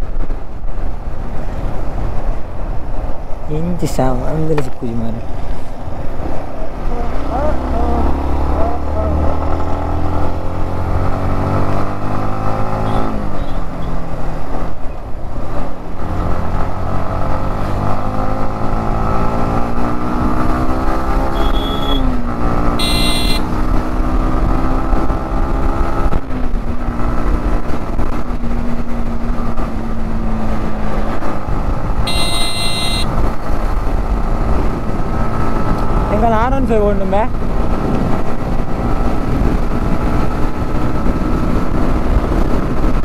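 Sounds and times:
motorcycle engine revving: 6.9 - 13.6, 16.0 - 43.0
short high-pitched beeps: 21.3 - 22.0, 22.8 - 23.4, 32.1 - 33.1.

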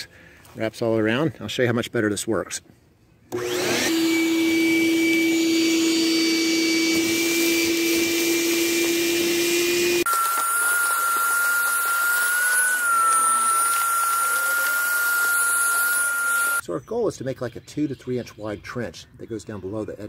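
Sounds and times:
shop vacuum running with a whine: 3.3 - 16.6.

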